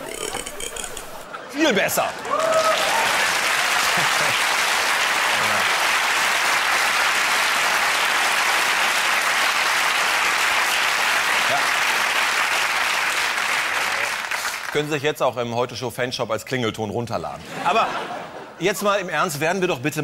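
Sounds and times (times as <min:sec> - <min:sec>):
studio audience applauding: 0:01.6 - 0:15.0.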